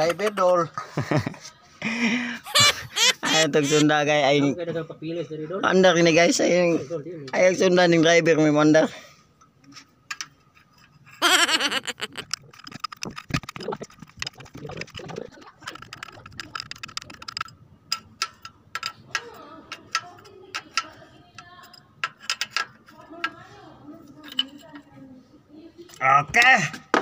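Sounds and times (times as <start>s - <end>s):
hand tools clicking on metal: 11.2s - 23.4s.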